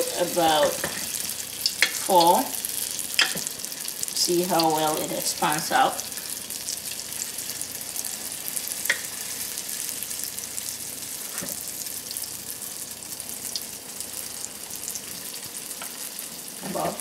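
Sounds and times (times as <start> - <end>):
dough sizzling in hot oil: 0.0 - 17.0.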